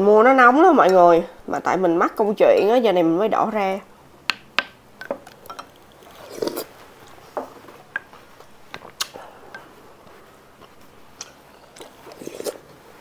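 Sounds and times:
mouth sounds of eating: 5.7s - 7.2s, 10.7s - 12.8s.

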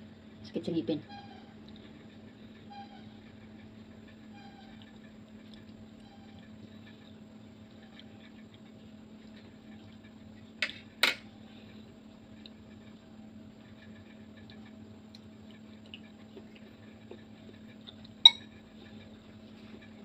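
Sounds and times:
steady low hum: 0.0s - 20.0s
cutlery clinking on ceramic bowl: 18.2s - 18.5s.

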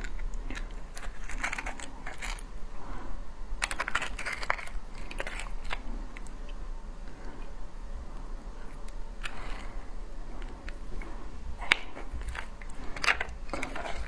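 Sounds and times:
crab shell cracking: 0.0s - 2.5s, 3.6s - 6.6s.

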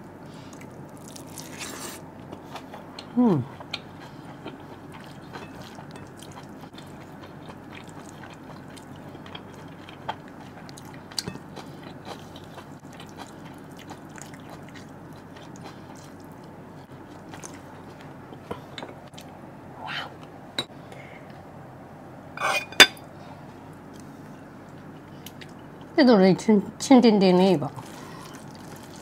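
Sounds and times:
person chewing food: 0.5s - 19.3s, 27.8s - 29.0s.

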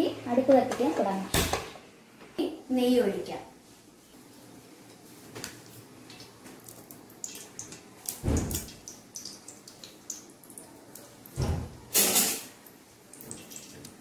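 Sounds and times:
ghee crackling and sizzling: 4.3s - 14.0s.

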